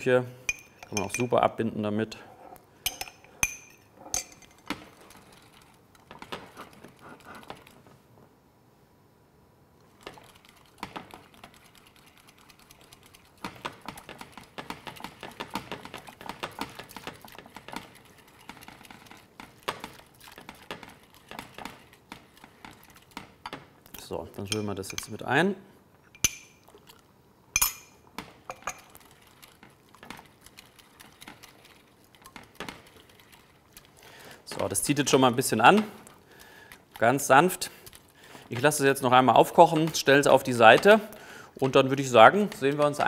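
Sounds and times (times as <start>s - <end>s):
metal spoon clinking in bowl: 0.5s - 1.4s, 2.9s - 4.6s, 24.5s - 25.2s, 26.1s - 26.6s, 27.6s - 28.9s.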